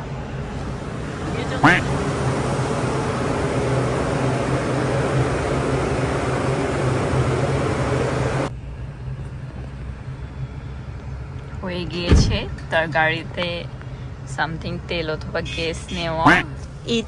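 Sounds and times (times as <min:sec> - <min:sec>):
gas pump machinery humming and hissing: 0:00.0 - 0:08.5.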